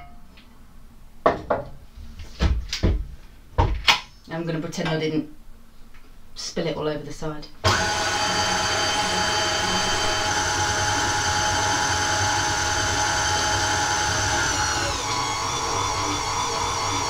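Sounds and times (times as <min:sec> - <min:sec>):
stand mixer motor whining: 0:07.6 - 0:17.0.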